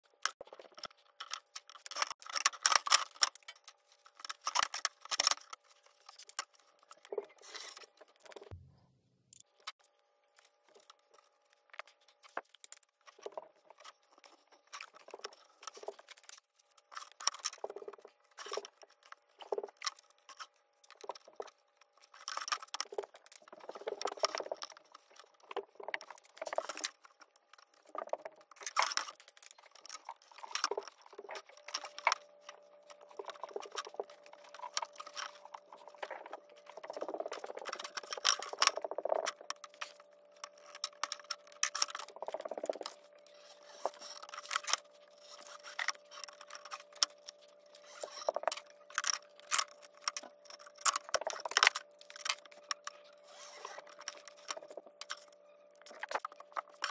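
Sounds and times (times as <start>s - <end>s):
spline roller clicking and scraping: 19.5s - 56.9s.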